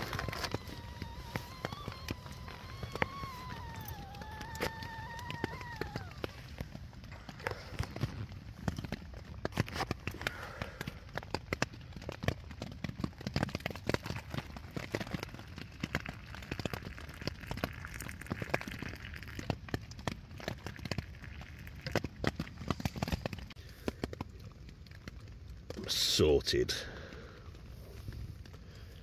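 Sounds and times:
rain pattering on tent: 0.0s - 29.0s
water pouring into steel mug: 16.0s - 19.5s.

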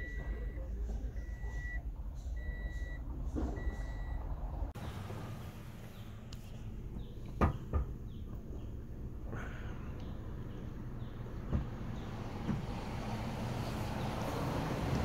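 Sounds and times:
electronic warning beeps: 0.0s - 1.8s, 2.4s - 3.0s, 3.6s - 4.2s.

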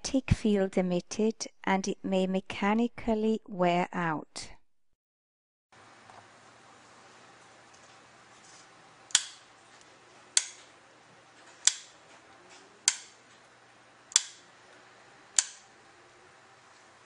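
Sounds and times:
switch clicking: 9.1s - 9.4s, 10.4s - 10.6s, 11.6s - 11.9s, 12.9s - 13.2s, 14.1s - 14.4s, 15.4s - 15.6s.

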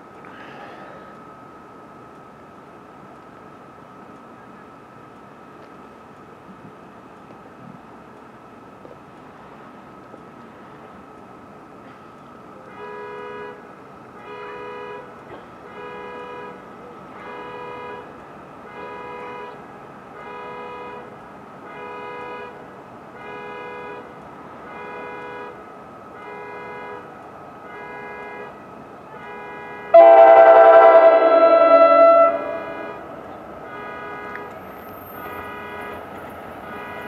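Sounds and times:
train horn blast: 12.7s - 19.6s, 20.2s - 22.6s, 26.2s - 37.0s
faint repeating tone: 30.0s - 33.7s.

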